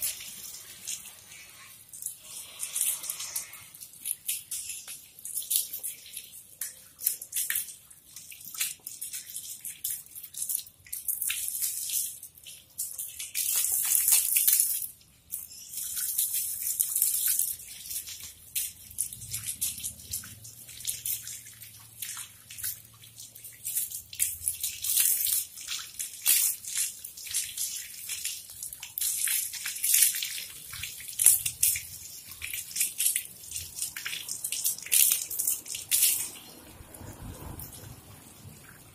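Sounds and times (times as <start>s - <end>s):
hose spraying water: 0.0s - 5.9s.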